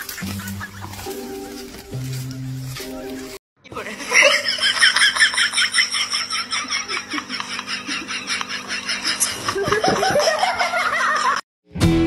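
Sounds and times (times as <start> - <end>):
person laughing hard: 3.8 - 11.4.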